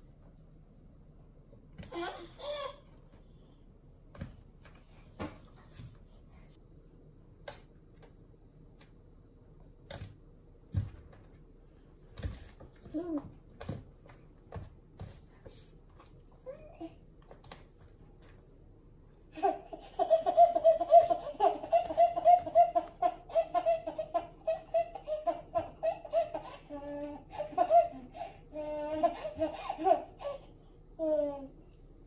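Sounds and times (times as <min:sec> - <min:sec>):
baby laughing: 0:19.3 - 0:30.5.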